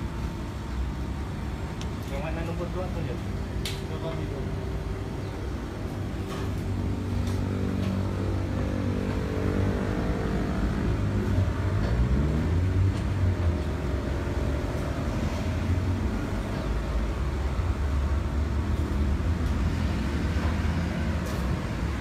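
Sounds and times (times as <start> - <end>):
ventilation machinery drone: 0.0 - 22.0.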